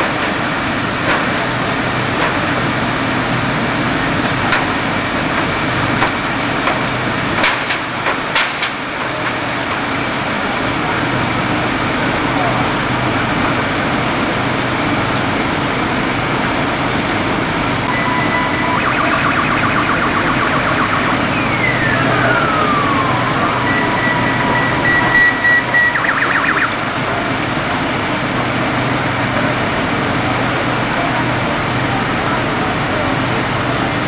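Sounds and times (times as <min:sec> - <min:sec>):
rumbling background noise: 0:00.0 - 0:34.0
emergency vehicle siren: 0:17.8 - 0:29.6.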